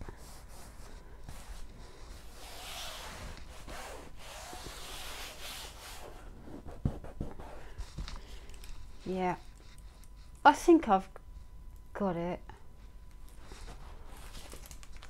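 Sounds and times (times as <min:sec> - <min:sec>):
hands swishing across canvas: 0:02.2 - 0:06.2.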